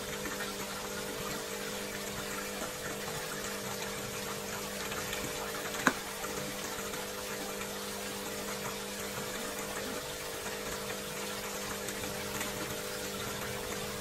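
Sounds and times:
pump humming: 0.0 - 14.0
water circulating: 0.0 - 14.0.

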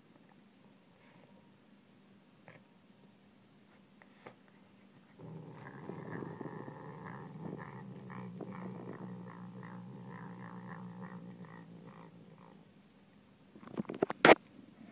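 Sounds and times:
cat growling: 5.2 - 12.8.

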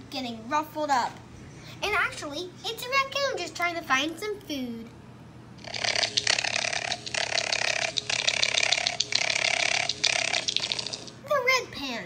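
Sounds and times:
raccoon chittering: 5.6 - 11.2.

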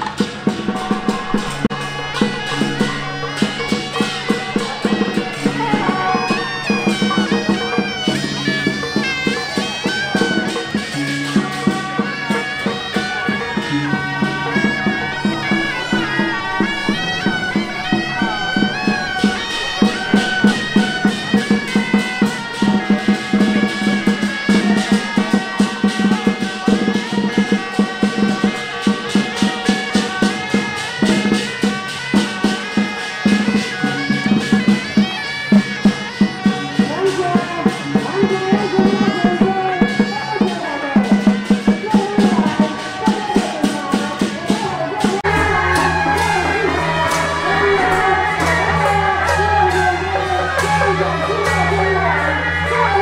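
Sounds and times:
drums and gongs beating: 0.0 - 53.0
reed horn melody: 0.0 - 53.0.

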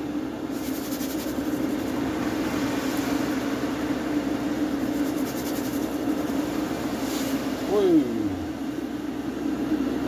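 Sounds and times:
extraction fan humming: 0.0 - 10.0.

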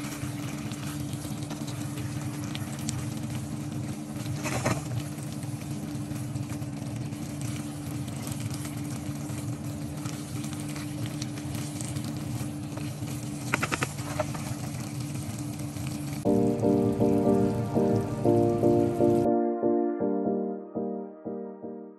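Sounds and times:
sauce simmering and bubbling: 0.0 - 19.0
steady low hum: 16.2 - 21.9.

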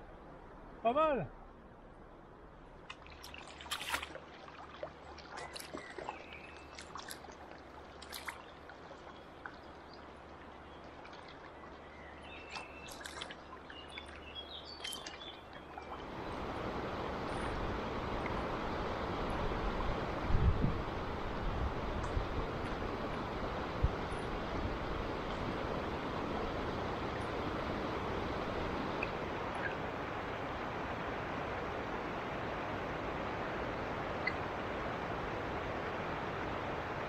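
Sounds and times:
river water flowing: 0.0 - 37.0
small splashes and trickles: 2.8 - 16.4, 28.9 - 30.6
rush of fast-flowing water: 3.0 - 37.0.

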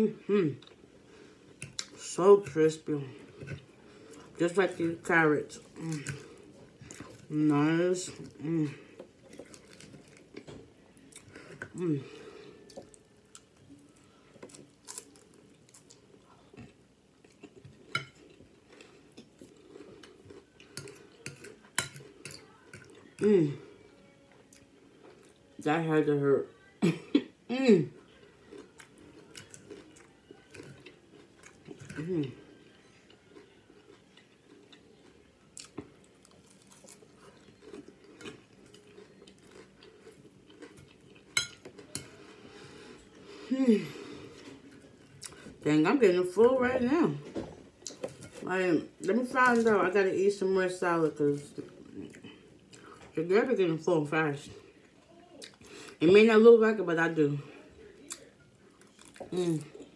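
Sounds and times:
chewing and crunching: 0.5 - 25.6, 27.8 - 45.6, 51.1 - 53.2, 57.5 - 59.9.

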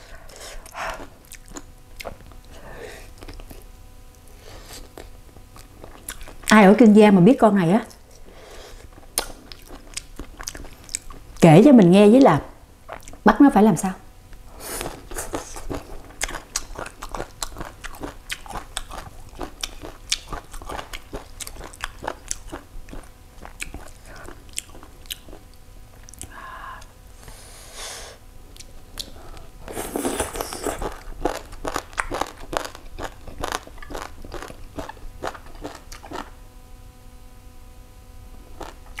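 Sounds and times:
crisp crunching and chewing: 14.8 - 26.3, 29.7 - 36.4, 38.5 - 39.0.

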